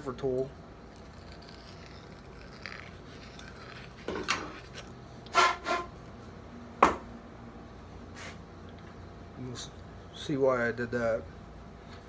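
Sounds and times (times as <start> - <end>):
metal tool scraping steel: 1.0 - 5.9.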